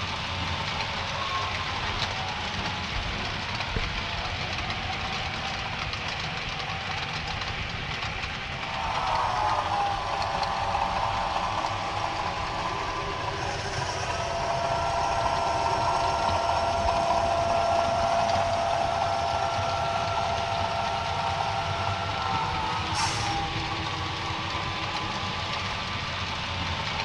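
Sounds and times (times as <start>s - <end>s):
diesel engine sound from small speaker: 7.7s - 27.0s.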